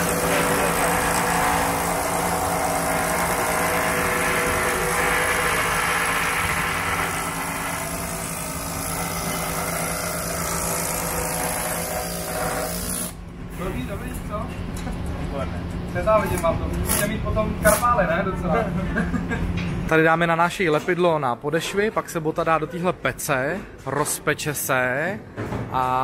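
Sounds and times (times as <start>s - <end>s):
pneumatic hammer buzzing: 0.0s - 13.2s.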